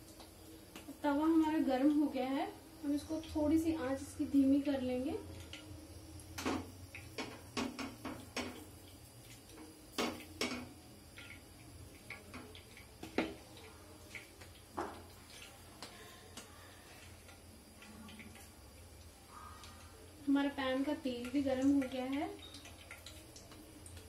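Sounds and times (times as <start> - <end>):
hands patting dough on a griddle: 12.0 - 16.5.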